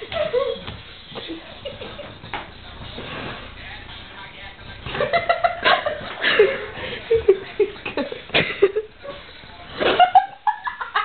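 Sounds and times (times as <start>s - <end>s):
people laughing and giggling: 0.0s - 2.6s, 4.8s - 11.0s.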